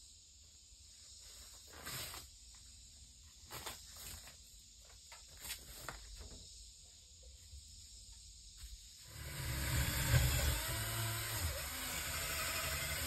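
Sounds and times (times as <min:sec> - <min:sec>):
faint steady high hiss: 0:00.0 - 0:13.0
insulation rustling and crinkling: 0:03.3 - 0:06.5.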